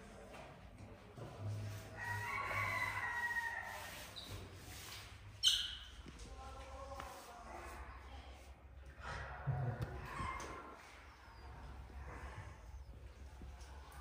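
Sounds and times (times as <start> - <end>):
rooster crowing: 2.0 - 4.0
sharp high-pitched squeak: 5.4 - 5.9.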